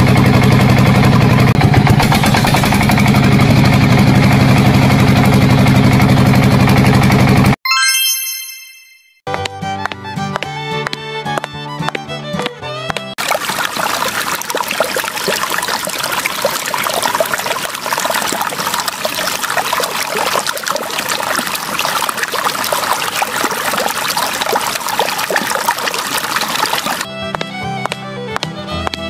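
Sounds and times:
water trickling into a tub: 0:13.2 - 0:27.1.

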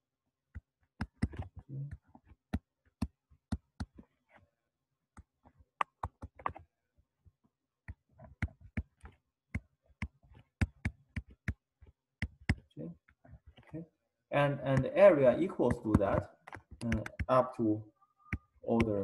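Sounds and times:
stylus tapping on tablet: 0:00.6 - 0:04.0, 0:05.2 - 0:06.6, 0:07.9 - 0:11.6, 0:12.2 - 0:12.7, 0:14.7 - 0:17.4, 0:18.3 - 0:19.0.

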